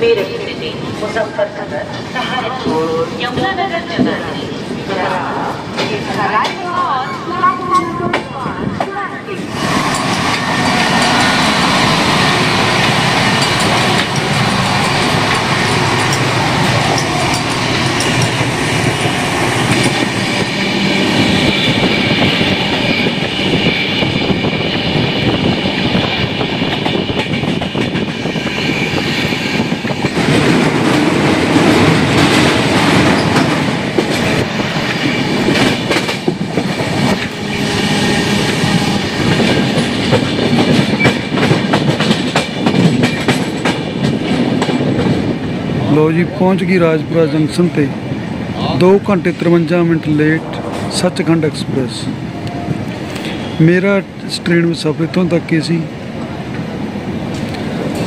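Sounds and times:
train wheels rumbling on rail: 0.0s - 58.0s
sharp train clatter: 5.7s - 45.4s.

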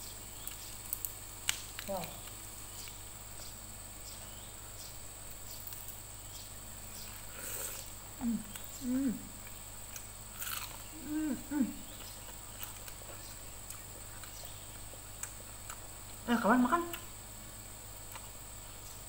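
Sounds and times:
closed-mouth hums: 7.3s - 9.5s, 10.8s - 12.3s
crunching bite of fried chicken: 9.9s - 11.0s.

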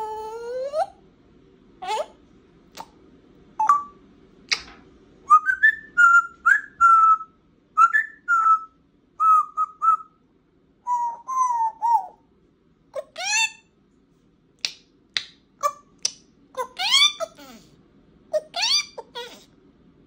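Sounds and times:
parrot whistling: 5.3s - 10.2s, 10.9s - 12.2s.

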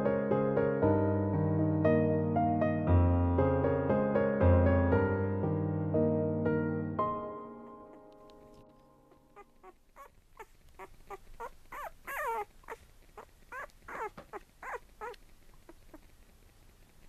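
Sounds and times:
puppy crying: 9.1s - 16.1s.

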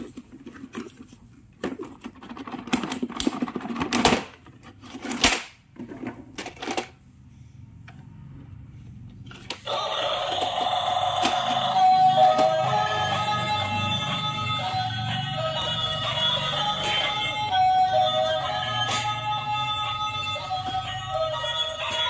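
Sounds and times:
plastic toy clicks and knocks: 1.6s - 7.0s
electronic toy music: 9.6s - 22.0s.

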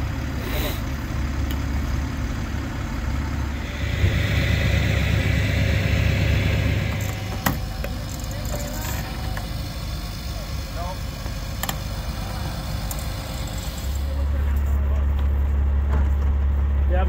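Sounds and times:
truck engine idling: 0.0s - 17.0s
hiss: 0.4s - 0.8s, 3.6s - 7.8s, 8.9s - 14.2s.

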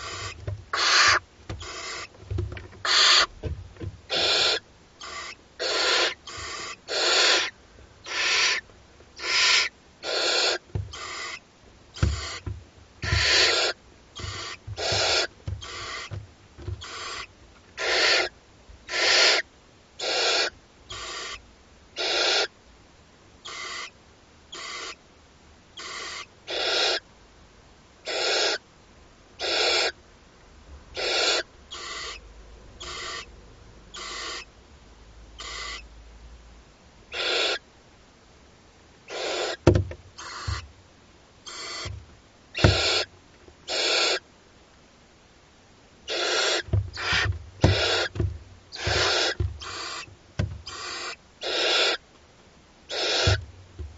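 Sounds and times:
owl chicks hissing begging calls: 0.0s - 2.2s, 2.8s - 3.3s, 4.1s - 16.2s, 16.8s - 21.4s, 22.0s - 22.6s, 23.4s - 25.0s, 25.8s - 27.1s, 28.0s - 28.6s, 29.4s - 30.0s, 30.9s - 34.5s, 35.4s - 35.9s, 37.1s - 37.7s, 39.1s - 40.7s, 41.4s - 44.3s, 46.0s - 52.0s, 52.9s - 53.5s
low thumps on nest-box floor: 0.0s - 4.2s, 10.7s - 11.1s, 12.0s - 17.0s, 39.6s - 40.7s, 41.8s - 43.0s, 46.6s - 50.8s, 53.2s - 53.9s.

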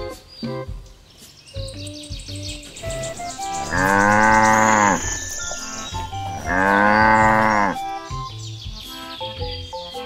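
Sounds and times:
light background music: 0.0s - 10.0s
cow mooing: 3.4s - 8.0s.

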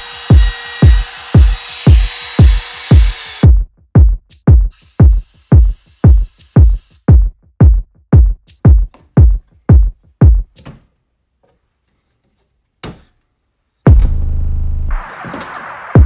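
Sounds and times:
electronic music with kick drum: 0.3s - 10.6s, 13.9s - 16.0s.

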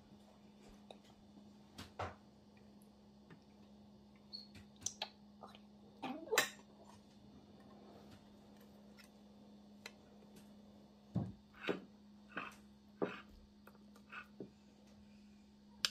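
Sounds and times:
faint steady hum: 0.0s - 15.9s.

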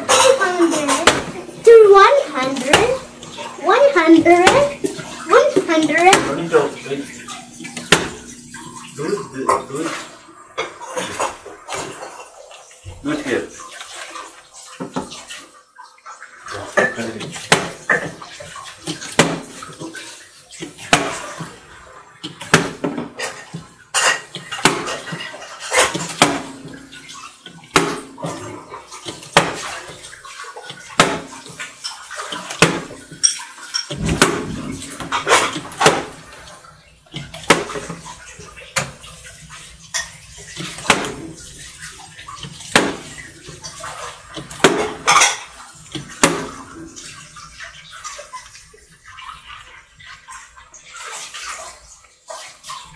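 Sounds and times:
water bottle landing on glass: 33.9s - 36.1s.

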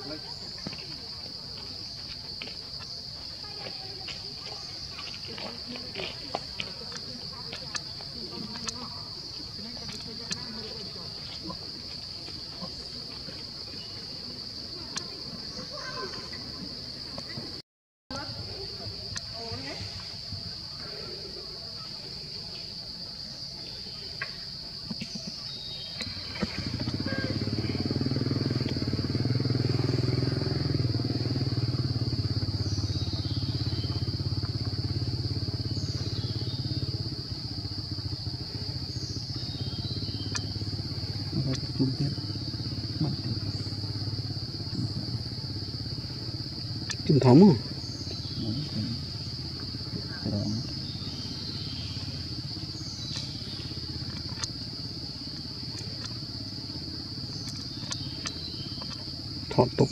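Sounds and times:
small engine pulsing hum: 0.0s - 59.9s
high-pitched insect drone: 23.4s - 59.9s
low steady rumble: 30.3s - 59.9s
faint clicks: 40.2s - 40.6s, 46.8s - 47.1s, 53.0s - 59.4s.

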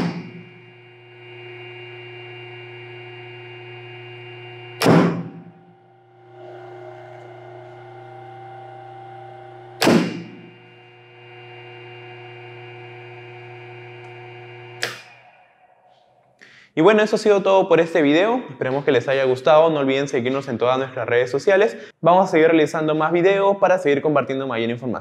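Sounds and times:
electric motors humming: 0.0s - 16.3s.

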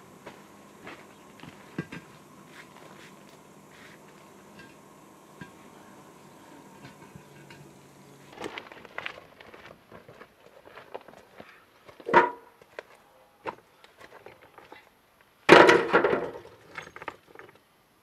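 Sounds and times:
footsteps crunching on stones: 0.0s - 4.9s, 8.2s - 14.8s
faint steady hum: 0.0s - 18.0s.

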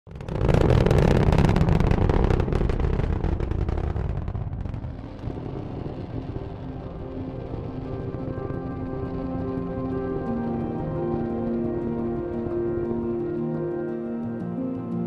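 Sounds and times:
rocket engine crackling rumble: 0.1s - 14.4s
music with held tones: 4.8s - 15.0s.

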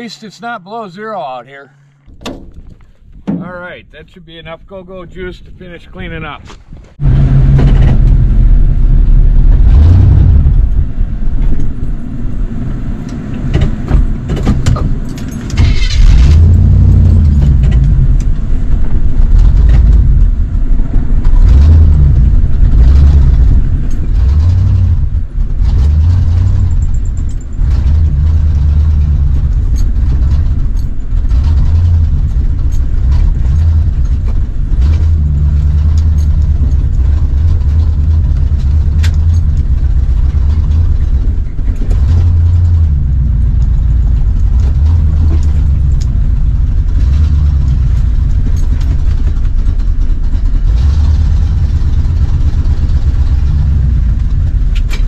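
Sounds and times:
man talking: 0.0s - 1.9s, 3.3s - 6.5s
truck engine drone from cab: 0.0s - 3.2s, 6.9s - 55.0s.

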